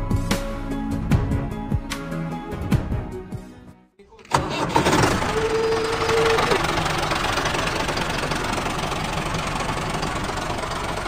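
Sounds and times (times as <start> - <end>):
tractor engine knocking: 4.3 - 11.0.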